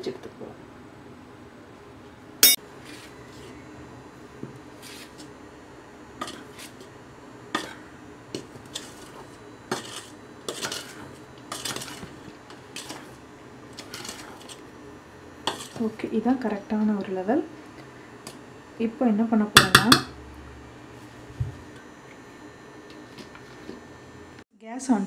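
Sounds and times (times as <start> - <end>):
metal bowl clinking and scraping: 8.7 - 13.2, 13.8 - 14.6, 15.5 - 15.9.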